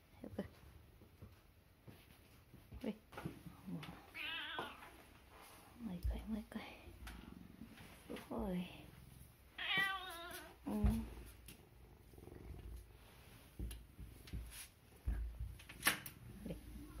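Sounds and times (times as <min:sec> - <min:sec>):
cat meowing: 0:04.1 - 0:04.8, 0:09.6 - 0:10.6.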